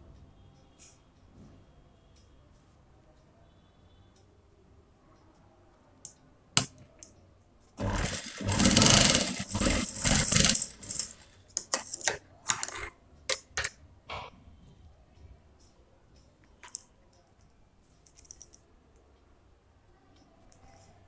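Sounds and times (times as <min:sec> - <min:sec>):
sewing machine stitching: 0:07.8 - 0:12.9
sewing machine clicks: 0:07.8 - 0:13.7.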